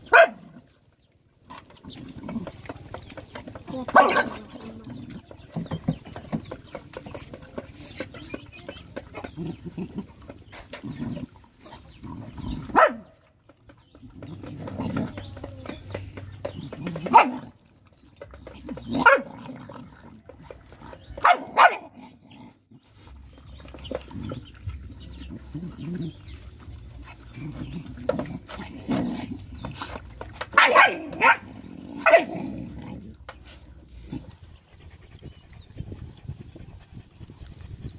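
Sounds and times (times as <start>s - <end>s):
dog barks: 0.0s - 0.6s, 3.9s - 4.5s, 12.6s - 13.2s, 16.9s - 17.5s, 18.9s - 19.4s, 21.2s - 22.0s, 30.5s - 32.4s
dogs eating from metal bowl: 0.0s - 37.9s.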